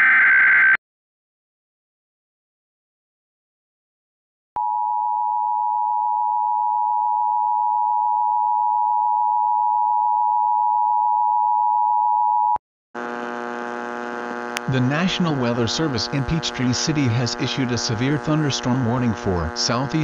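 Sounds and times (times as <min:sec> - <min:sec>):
electrical buzzing hum: 0:13.0 - 0:20.0.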